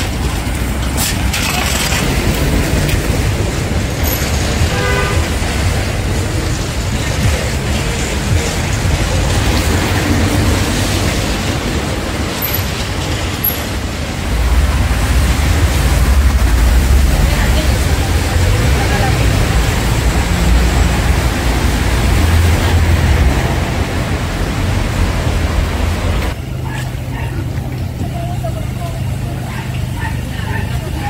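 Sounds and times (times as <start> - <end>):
cars passing on a wet road: 0.0 - 31.0
car horn toot: 4.0 - 5.7.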